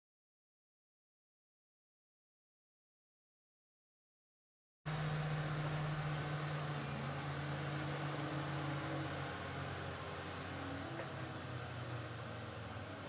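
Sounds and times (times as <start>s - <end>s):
diesel engine running: 4.9s - 13.0s.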